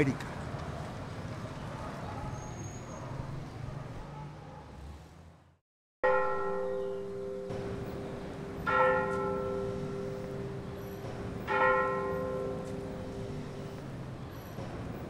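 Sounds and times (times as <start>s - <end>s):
church bell tolling: 6.0s - 14.1s.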